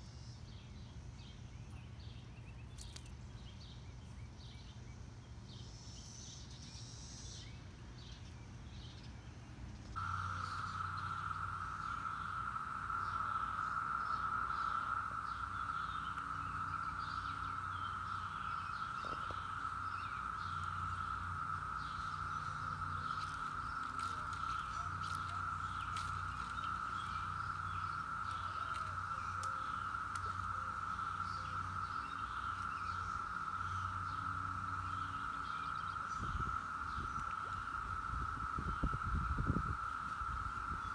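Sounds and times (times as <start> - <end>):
cicadas droning: 0.0 - 40.9
faint bird chirps: 0.0 - 40.9
low hum: 9.4 - 40.9.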